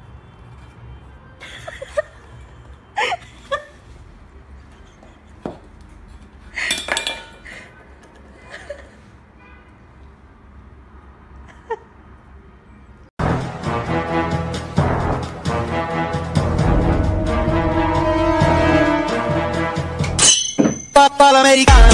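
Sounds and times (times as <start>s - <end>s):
sharp metal clinks and knocks: 20.2s - 21.1s.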